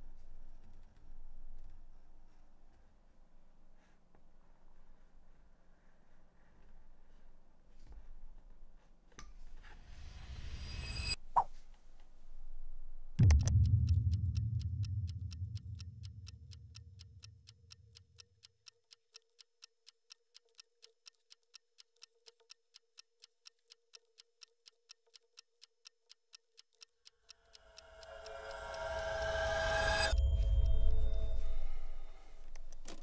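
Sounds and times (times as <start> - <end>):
low boom: 13.2 - 17.0
clock ticking: 13.2 - 33.0
faint steady tone: 27.3 - 32.8.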